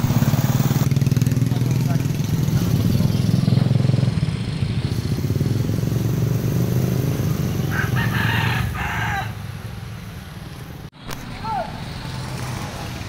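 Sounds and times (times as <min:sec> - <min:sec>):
motorcycle engines passing: 0:00.0 - 0:13.0
rooster crowing: 0:07.6 - 0:09.6.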